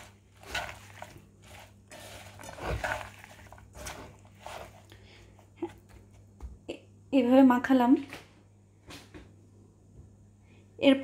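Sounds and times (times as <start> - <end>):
food squishing in frying pan: 0.0 - 5.0.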